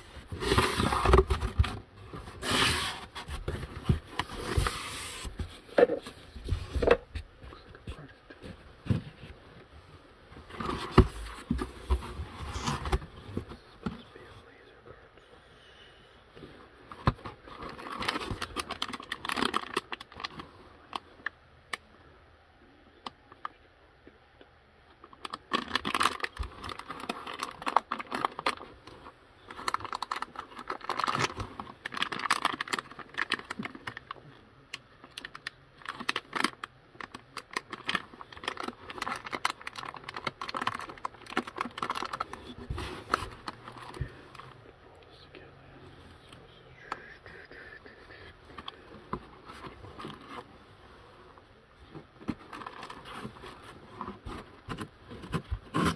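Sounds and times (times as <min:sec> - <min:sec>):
plastic bags crinkling: 0:17.6 - 0:20.4, 0:29.5 - 0:34.2, 0:35.0 - 0:44.4, 0:52.3 - 0:53.7.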